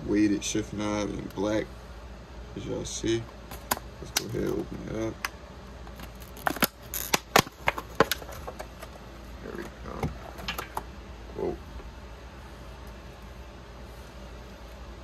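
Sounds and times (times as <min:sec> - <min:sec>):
plastic snaps: 0:05.2 - 0:08.9
plastic packaging crackling: 0:05.9 - 0:08.6.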